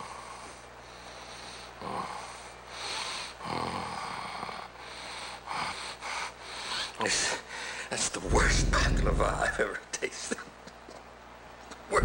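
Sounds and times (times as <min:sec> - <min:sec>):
man breathing noisily: 0:00.0 - 0:09.3.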